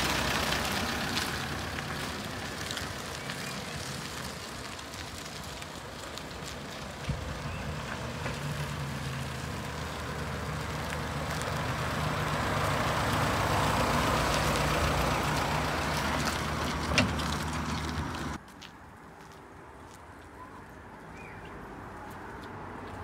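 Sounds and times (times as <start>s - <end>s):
diesel pickup engine hum: 0.0s - 18.4s.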